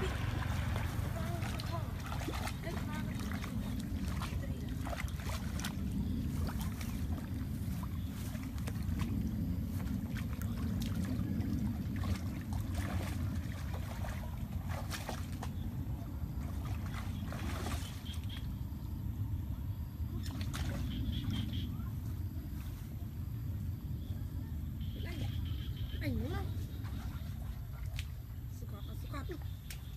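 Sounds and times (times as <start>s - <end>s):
water splashes: 0.0s - 18.5s, 20.1s - 21.7s
water sloshing and trickling: 0.0s - 19.0s, 19.8s - 23.4s, 26.0s - 29.9s
steady low rumble: 0.0s - 29.0s.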